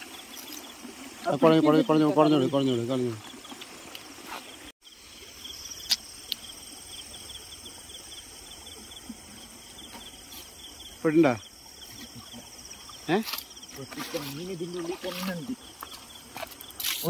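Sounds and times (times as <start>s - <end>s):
crickets chirping: 0.0s - 17.0s.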